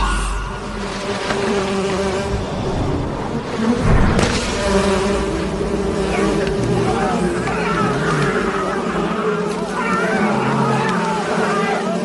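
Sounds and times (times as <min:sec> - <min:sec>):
wasps buzzing angrily: 0:01.3 - 0:02.4.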